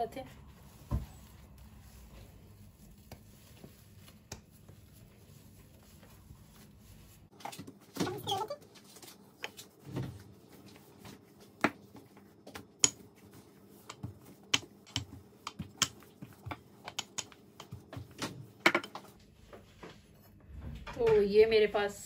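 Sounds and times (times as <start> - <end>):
rolling pin knocking on countertop: 13.9 - 19.0.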